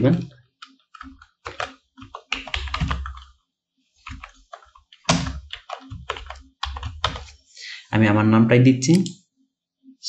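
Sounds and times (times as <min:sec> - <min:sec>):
computer keyboard typing: 0:00.0 - 0:03.4, 0:04.0 - 0:07.4.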